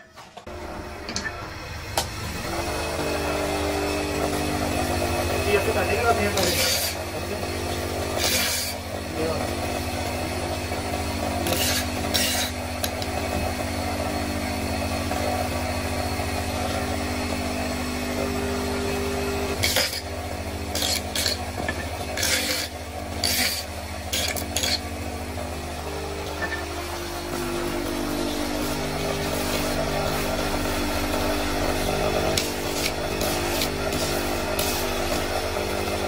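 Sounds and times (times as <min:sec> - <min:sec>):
electric disc sander running: 0:00.4 - 0:36.0
wood rasping against sanding disc: 0:05.4 - 0:07.3, 0:11.4 - 0:12.6, 0:22.1 - 0:24.8.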